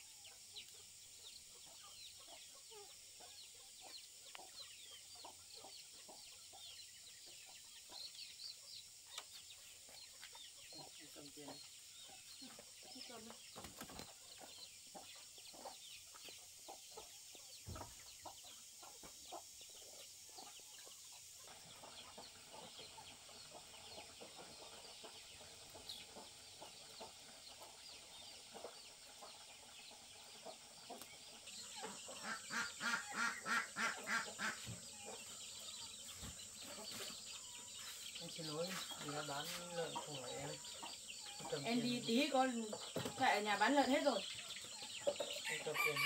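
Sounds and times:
chickens clucking: 0.0s - 46.0s.

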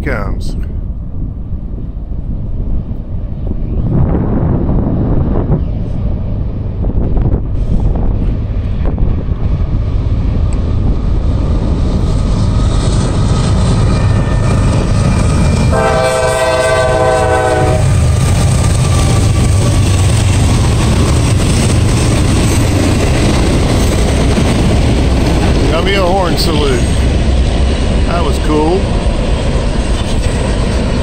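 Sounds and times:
diesel locomotives rumbling: 0.0s - 31.0s
freight cars rolling on rails: 6.4s - 31.0s
train air horn: 15.7s - 18.0s.

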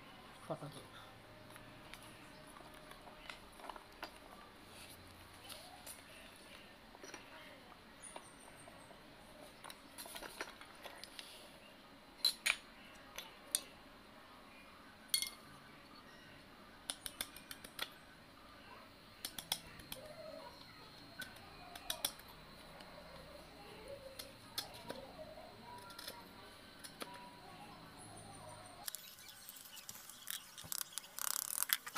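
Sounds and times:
knife clicking and snapping wood: 16.9s - 18.0s, 21.2s - 22.2s.

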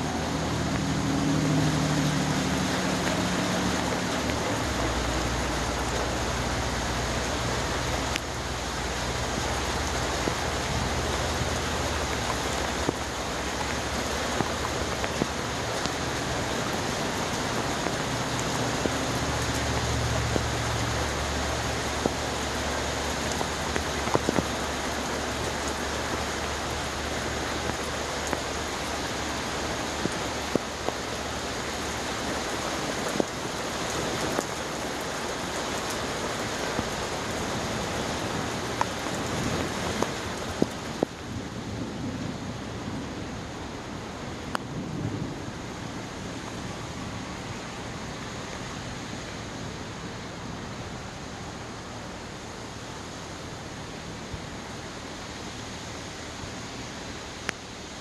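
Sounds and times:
water rushing: 0.0s - 58.0s
small drips and taps: 9.1s - 16.2s, 23.0s - 26.6s, 27.2s - 29.3s.

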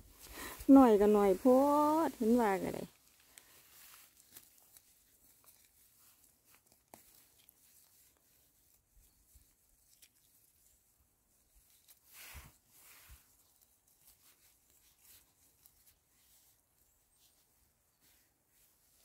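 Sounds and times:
faint rustles: 0.0s - 19.0s.

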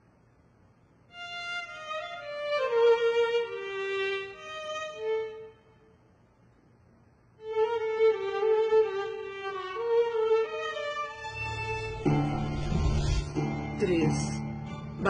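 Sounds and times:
solo violin slow melody: 1.1s - 5.8s, 7.4s - 12.1s.

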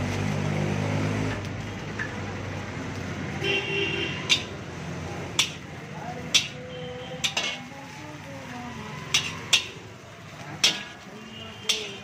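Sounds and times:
ladle clanking against wok: 4.2s - 4.6s, 5.2s - 7.8s, 9.0s - 12.0s.

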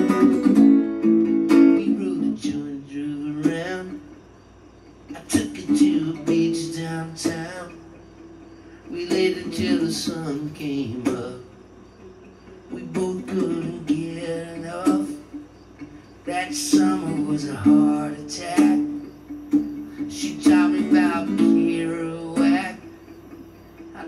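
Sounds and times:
acoustic string instrument strumming: 0.0s - 24.0s
man singing: 1.5s - 4.2s, 5.1s - 8.0s, 8.8s - 11.6s, 12.7s - 15.5s, 16.2s - 19.2s, 19.8s - 23.1s.

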